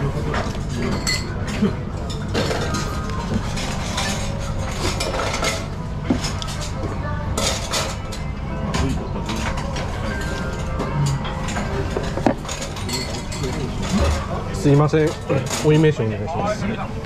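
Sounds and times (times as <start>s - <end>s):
low restaurant hum: 0.0s - 17.0s
crockery and cutlery clinks: 0.8s - 2.8s, 9.3s - 14.2s.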